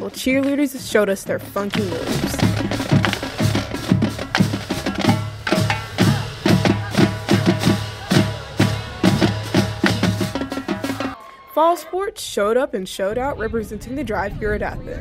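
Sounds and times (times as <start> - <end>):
heavy drum beat: 0.0 - 11.2.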